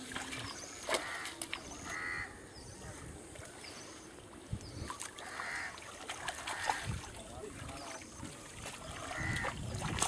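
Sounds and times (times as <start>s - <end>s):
water splashing around a net: 0.0s - 1.9s, 4.8s - 10.0s.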